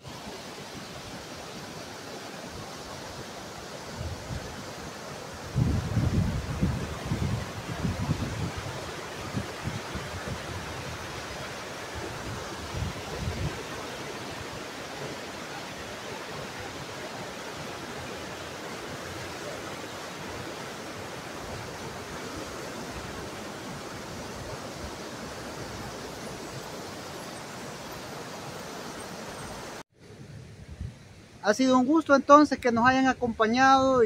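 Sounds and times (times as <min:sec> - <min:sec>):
river water rushing over boulders: 0:00.0 - 0:30.3.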